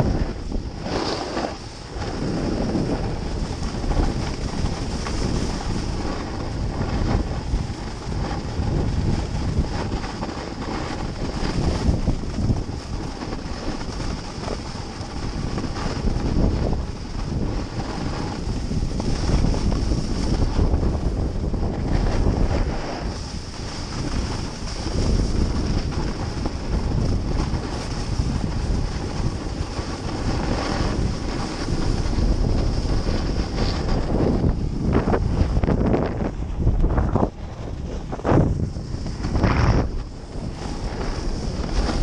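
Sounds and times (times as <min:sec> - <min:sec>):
wind buffeting microphone: 0:00.0 - 0:42.0
skis hissing on snow: 0:00.1 - 0:08.4, 0:22.0 - 0:34.4.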